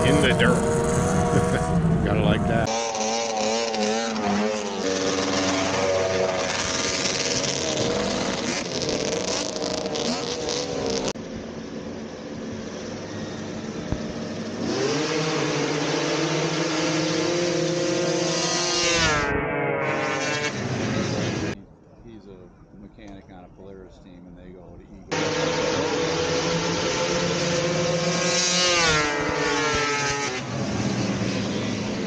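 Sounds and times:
snowmobile engines revving: 0.0s - 11.2s, 12.9s - 32.0s.

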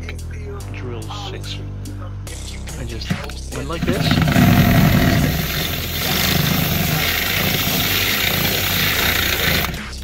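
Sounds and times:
drill grinding through metal: 3.7s - 9.9s.

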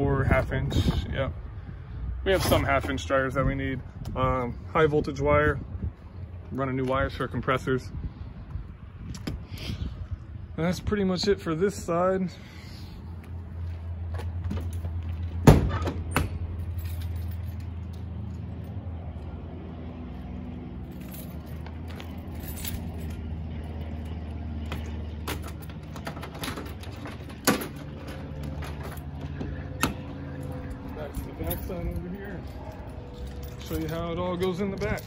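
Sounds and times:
low hum: 16.3s - 35.0s
keys jangling: 16.5s - 18.7s, 20.8s - 35.0s
metal compartment latching: 25.3s - 29.1s.

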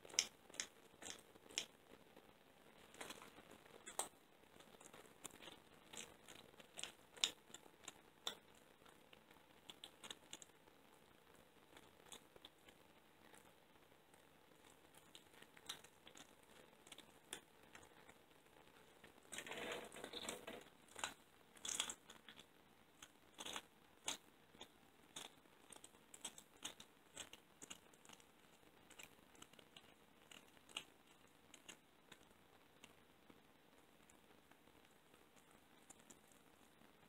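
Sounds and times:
cat crunching bone: 0.1s - 1.8s, 2.9s - 9.0s, 14.6s - 32.3s.

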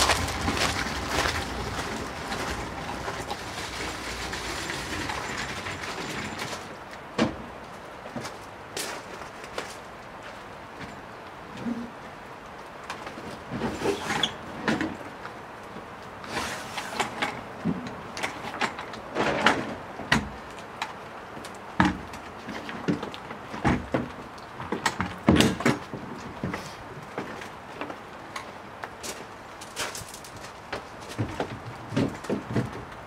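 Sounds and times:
trolley knocks and scrapes: 0.0s - 7.5s, 13.2s - 15.0s, 16.2s - 20.3s, 29.6s - 32.9s.

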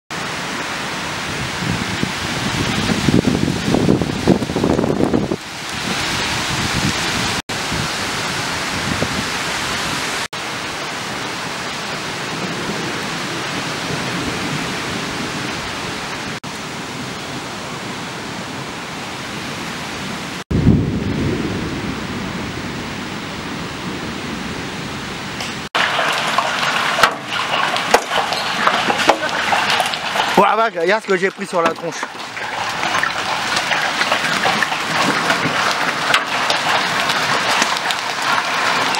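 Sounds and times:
rain and hail on trees: 0.1s - 23.6s, 24.3s - 38.9s
deep rumbling surge: 20.5s - 25.4s.

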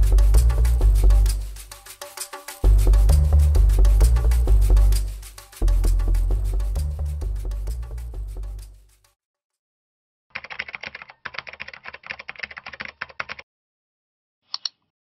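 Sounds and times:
theme music with drums: 0.0s - 8.9s
rapid keyboard typing: 10.3s - 13.4s.

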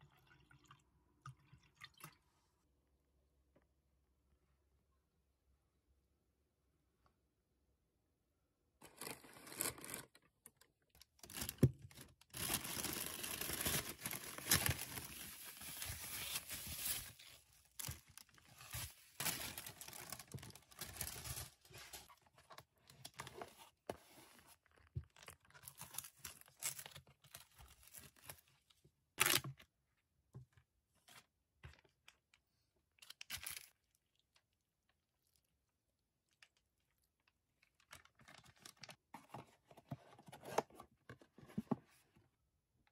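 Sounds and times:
plastic bag crinkling and tearing: 11.1s - 22.1s.

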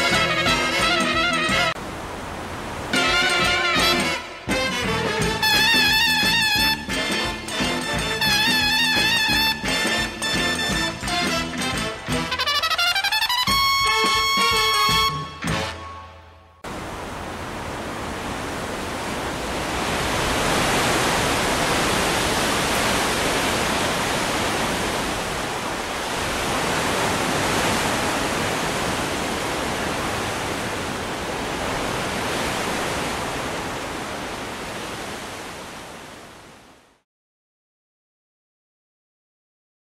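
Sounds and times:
wind rushing through leafy trees: 1.6s - 4.6s, 16.6s - 37.0s.

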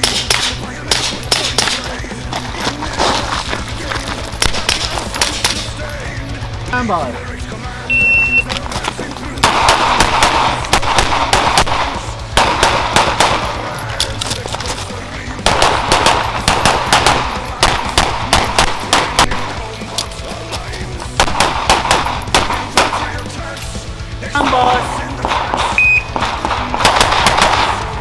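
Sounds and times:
pistol shots: 0.0s - 2.1s, 4.4s - 5.7s, 9.4s - 14.4s, 15.4s - 19.7s, 21.2s - 23.3s, 25.0s - 28.0s.

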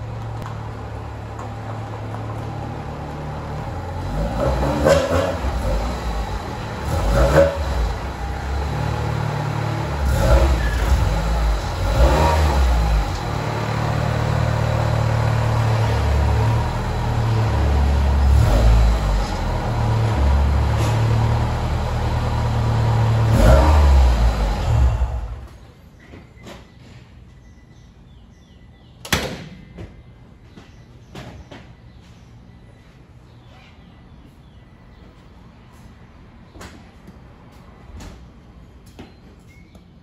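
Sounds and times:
car engine running at low speed: 0.0s - 25.7s.

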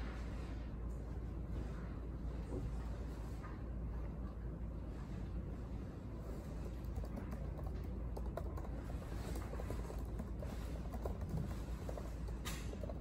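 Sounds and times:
low room hum: 0.0s - 13.0s
laptop keyboard typing: 6.5s - 13.0s.

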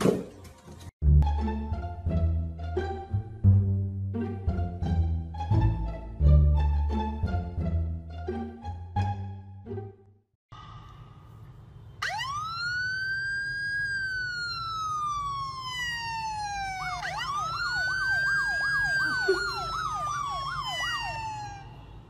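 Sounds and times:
siren wailing: 12.0s - 22.0s
siren yelp: 12.0s - 22.0s.

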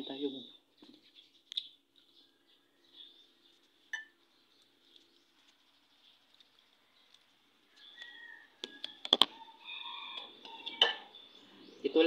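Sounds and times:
spoon clinking against bowl: 3.9s - 4.2s.

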